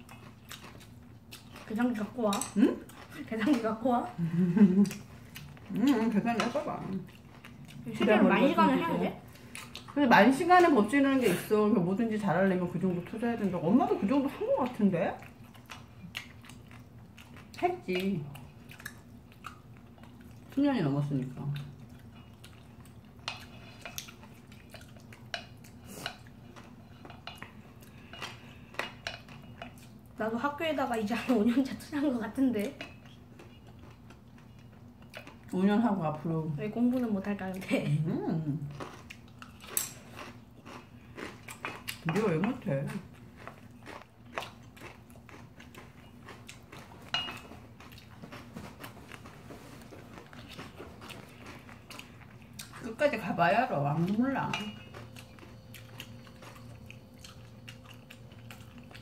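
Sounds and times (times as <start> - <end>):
person chewing: 0.0 - 2.1, 2.7 - 3.6, 4.7 - 7.9, 15.2 - 17.6, 18.2 - 20.6, 21.5 - 30.1, 32.9 - 35.5, 38.7 - 42.1, 43.0 - 52.8, 54.0 - 59.0.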